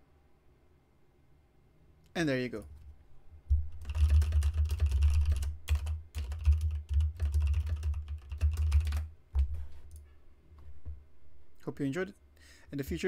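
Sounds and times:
typing on computer keyboard: 0:03.7 - 0:09.5.

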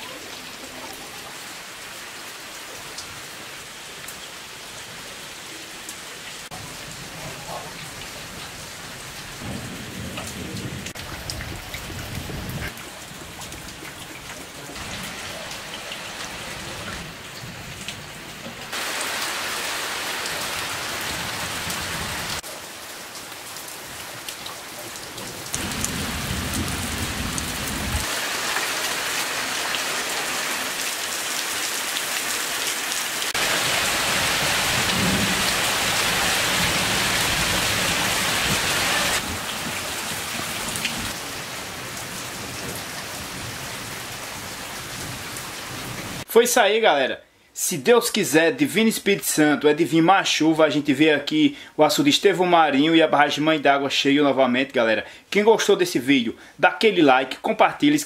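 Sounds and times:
rain on puddles and roof tiles: 0:00.0 - 0:46.3
water dripping off tiles: 0:12.7 - 0:17.0.

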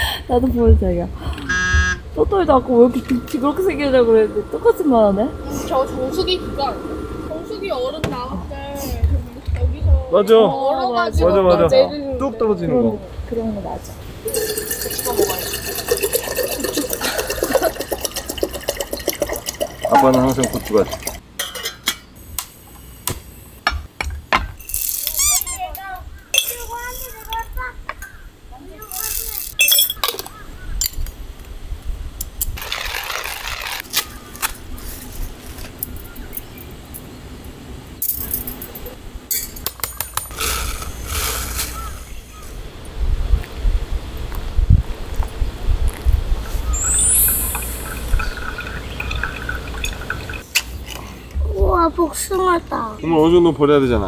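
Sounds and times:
water pouring into metal pot: 0:14.2 - 0:21.2, 0:46.8 - 0:50.5.

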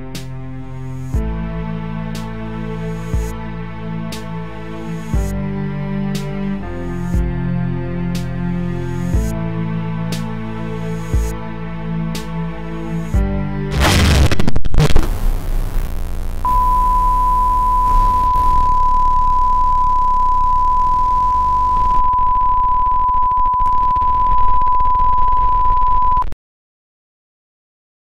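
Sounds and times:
harsh crackling noise: 0:13.7 - 0:25.7
high-pitched test-tone beep: 0:16.5 - 0:26.2.

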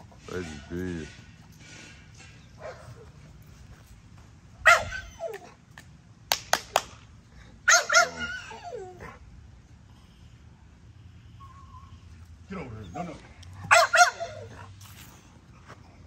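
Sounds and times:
dog barking: 0:04.6 - 0:05.1, 0:07.7 - 0:08.5, 0:13.6 - 0:14.5
dogs yelping: 0:04.6 - 0:05.6, 0:07.7 - 0:09.2, 0:11.3 - 0:15.0.

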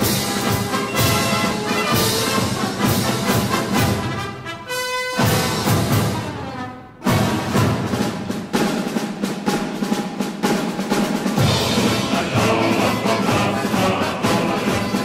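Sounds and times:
snare drum rolls: 0:00.0 - 0:04.5, 0:05.1 - 0:15.0
low brass: 0:00.0 - 0:07.8
military band playing a march: 0:00.0 - 0:15.0
percussion strokes: 0:07.0 - 0:15.0
singing voices: 0:11.4 - 0:15.0.

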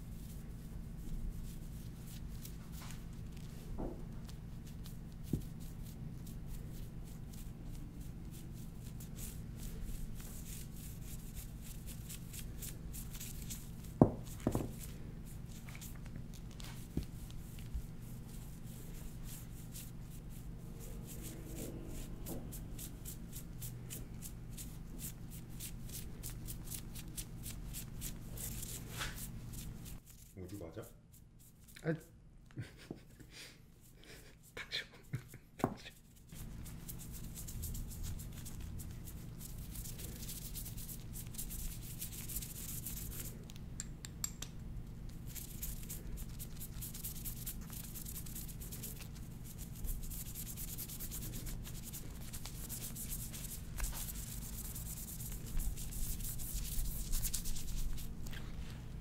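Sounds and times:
steady low hum: 0:00.0 - 0:59.0
gloved hand rubbing surface: 0:04.2 - 0:31.8, 0:45.3 - 0:59.0.

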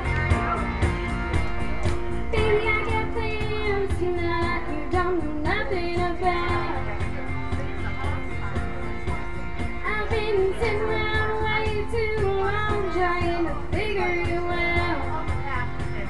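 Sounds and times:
karaoke backing track: 0:00.0 - 0:16.0
girl singing into a microphone: 0:02.3 - 0:07.0, 0:09.8 - 0:15.9.

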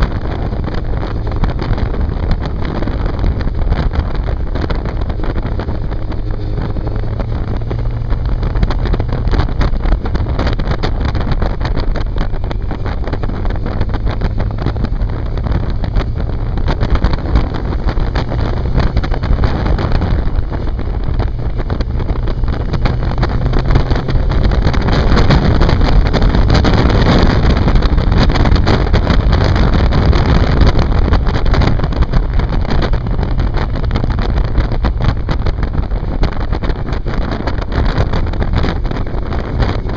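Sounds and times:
motorcycle engine riding: 0:00.0 - 0:39.9
wind noise on microphone: 0:00.0 - 0:39.9.

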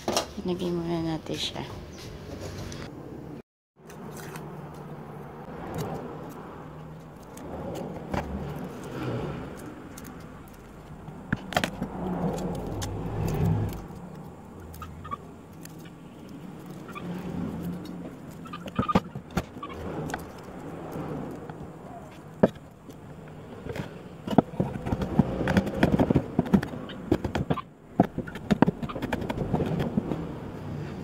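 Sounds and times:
highway traffic rumble: 0:00.0 - 0:31.0
eggshells cracking on wooden board: 0:23.7 - 0:30.2.

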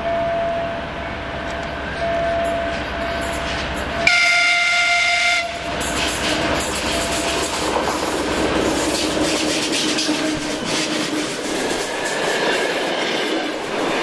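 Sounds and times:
train wheels clattering on rails: 0:01.3 - 0:14.0
locomotive horn blast: 0:04.0 - 0:05.7, 0:10.0 - 0:11.4.

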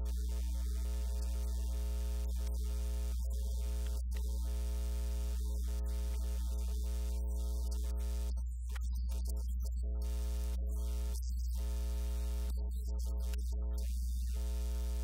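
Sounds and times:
electrical mains hum: 0:00.0 - 0:08.4.

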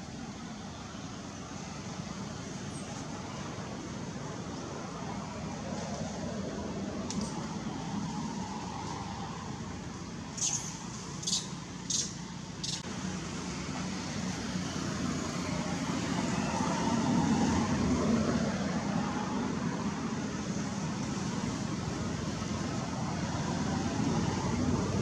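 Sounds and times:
outdoor background rumble: 0:00.0 - 0:25.0.

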